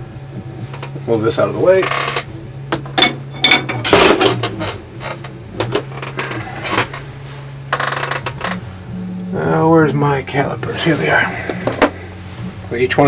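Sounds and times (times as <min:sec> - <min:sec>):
tools clinking on a workbench: 0:02.8 - 0:07.0
scraping and rustling: 0:03.0 - 0:08.8.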